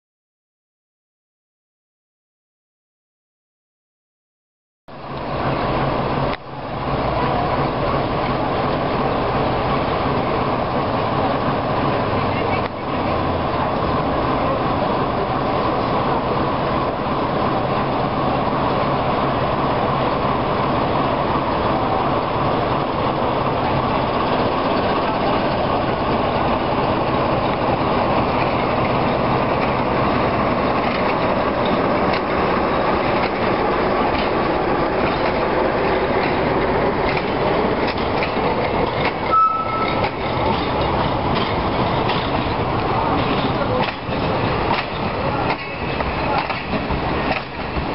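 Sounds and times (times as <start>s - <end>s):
locomotive engine running loudly: 5.0s - 47.9s
train wheels clattering on rails: 5.2s - 47.9s
brief high squeal: 39.3s - 40.1s.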